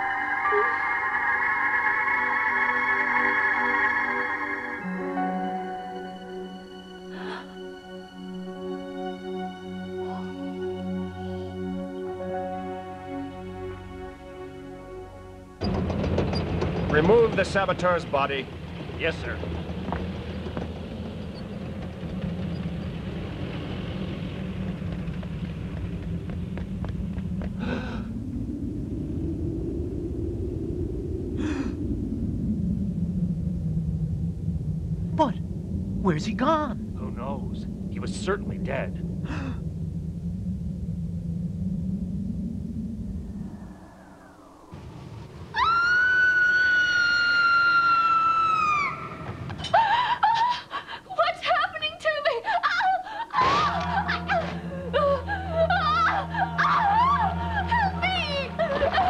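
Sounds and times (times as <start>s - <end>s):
low rumble: 0.0s - 50.5s, 51.8s - 59.0s
blizzard wind: 0.0s - 59.0s
person moaning: 27.6s - 28.1s, 39.2s - 39.6s.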